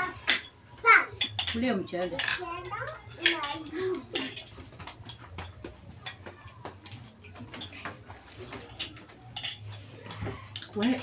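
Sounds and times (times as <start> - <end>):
spoons scraping on plates: 0.0 - 6.2, 7.0 - 11.0.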